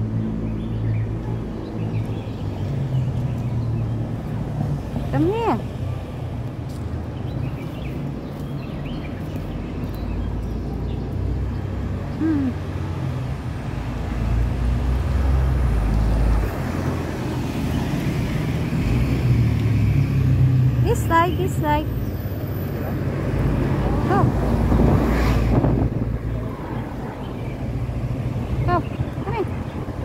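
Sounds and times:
road traffic noise: 0.0s - 30.0s
vehicle passing: 9.3s - 30.0s.

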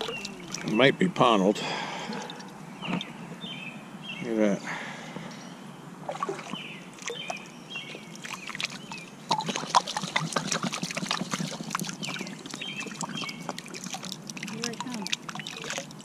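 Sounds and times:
bottle splashing in river water: 0.0s - 0.8s, 6.1s - 7.4s, 8.0s - 16.0s
bird chirps: 0.0s - 1.1s.

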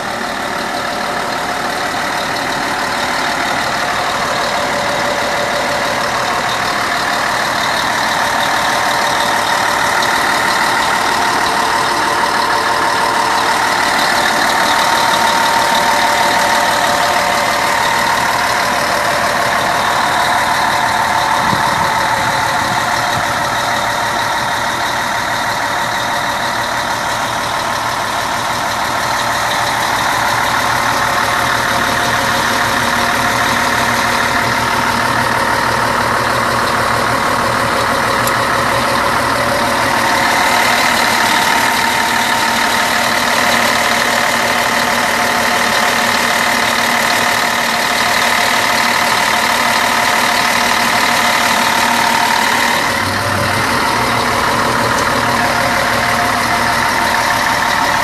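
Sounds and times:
bus diesel engine idling: 0.0s - 58.0s.

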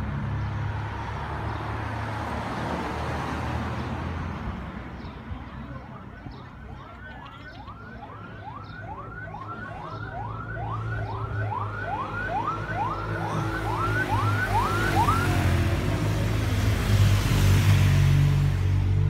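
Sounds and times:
siren yelping: 6.0s - 15.6s.

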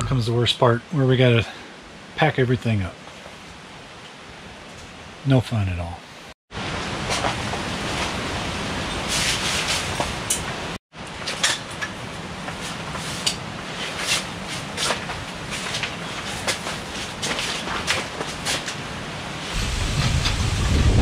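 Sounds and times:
wind rushing across microphone: 18.8s - 21.0s.

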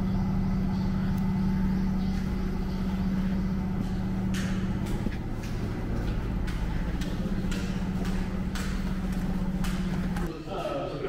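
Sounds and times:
low mechanical hum: 0.0s - 11.0s
footsteps on concrete steps: 3.7s - 10.3s.

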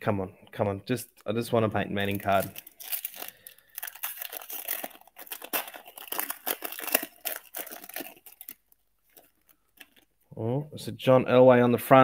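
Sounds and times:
foil wrapper crinkling and tearing: 1.6s - 10.2s.

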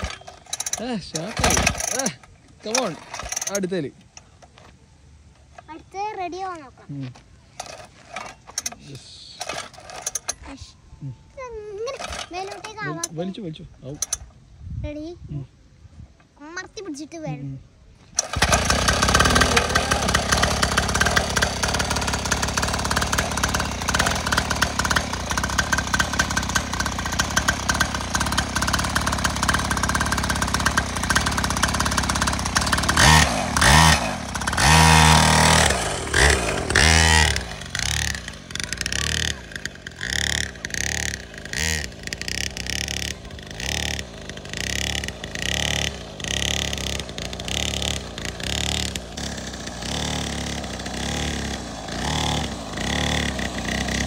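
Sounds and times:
two-stroke engine idling and revving: 0.0s - 3.9s, 7.6s - 10.5s, 11.9s - 13.3s, 18.1s - 54.0s.

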